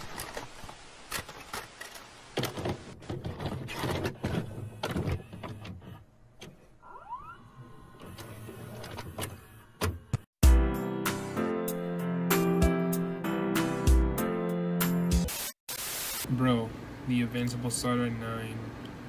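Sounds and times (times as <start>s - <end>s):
hiss: 15.3s - 16.3s.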